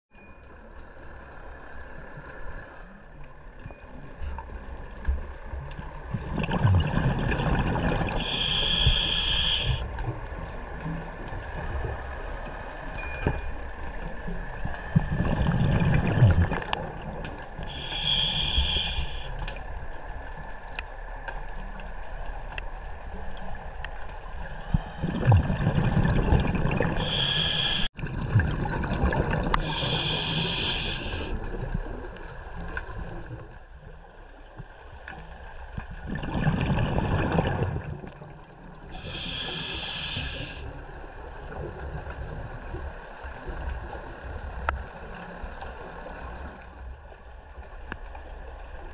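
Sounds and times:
faint steady hum: 0:05.9 - 0:10.8, 0:11.8 - 0:34.8, 0:36.2 - 0:48.0
gurgling exhaled bubbles: 0:06.1 - 0:09.1, 0:14.9 - 0:18.9, 0:24.8 - 0:31.9, 0:35.9 - 0:40.6
hissing regulator breaths: 0:08.1 - 0:09.8, 0:17.7 - 0:19.4, 0:26.9 - 0:27.9, 0:29.5 - 0:31.4, 0:38.9 - 0:40.7.

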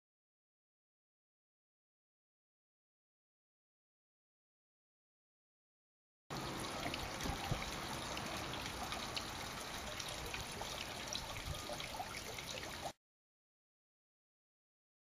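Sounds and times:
outdoor hiss: 0:06.3 - 0:12.8.

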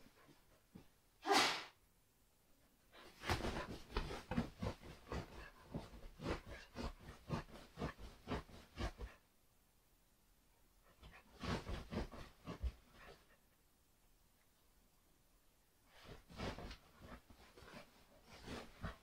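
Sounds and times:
dog scratching at a duvet: 0:03.2 - 0:09.2, 0:11.1 - 0:12.8.

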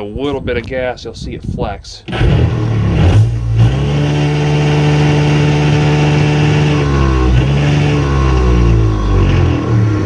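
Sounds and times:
electric motor hum: 0:02.1 - 0:10.0.

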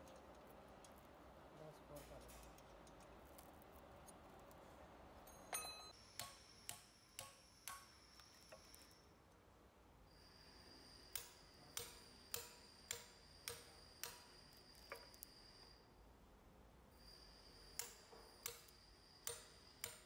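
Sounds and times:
hammer striking steel chisel: 0:05.3 - 0:08.7, 0:11.1 - 0:15.0, 0:17.8 - 0:20.0.

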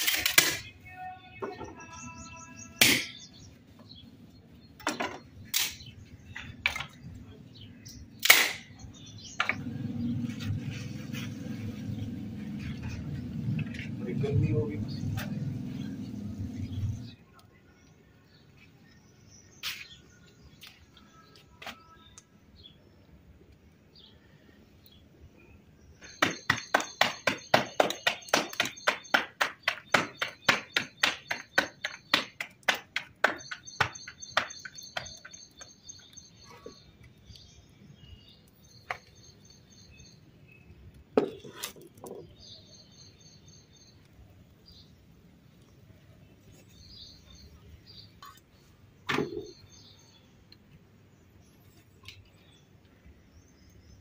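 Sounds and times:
small birds chirping: 0:00.6 - 0:54.0
knocks: 0:26.2 - 0:35.3.

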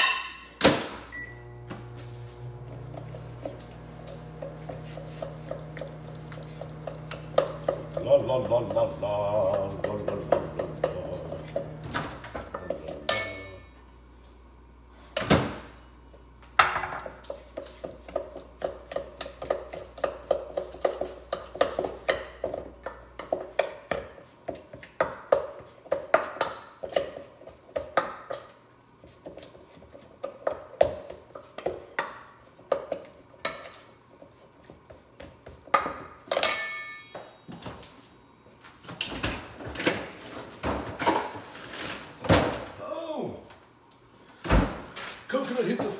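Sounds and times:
utensil scraping a steel bowl: 0:02.4 - 0:11.9
bowl ringing ping: 0:12.5 - 0:16.5, 0:36.3 - 0:38.4.

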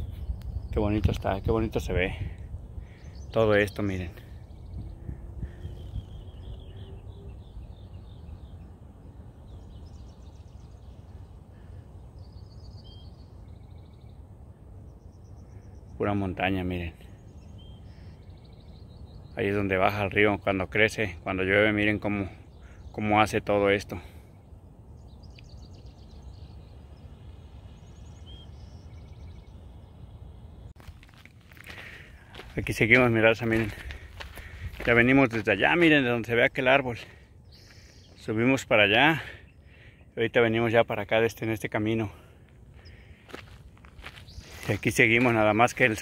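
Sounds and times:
steady low rumble: 0:00.0 - 0:19.4, 0:24.0 - 0:40.0
small birds chirping: 0:00.0 - 0:46.0.

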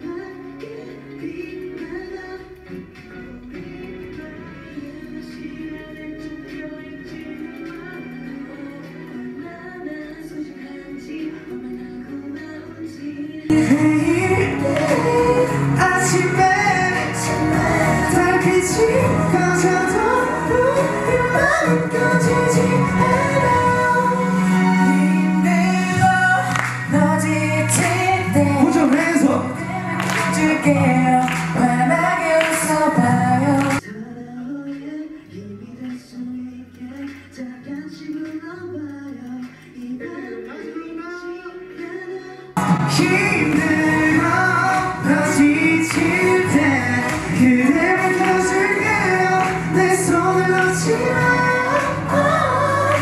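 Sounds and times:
pop song with group singing: 0:00.0 - 0:53.0
steady bass line: 0:13.5 - 0:33.8, 0:42.6 - 0:53.0
hand claps: 0:14.7 - 0:15.3, 0:26.5 - 0:27.0, 0:30.0 - 0:32.8, 0:33.6 - 0:33.8, 0:42.6 - 0:52.1.

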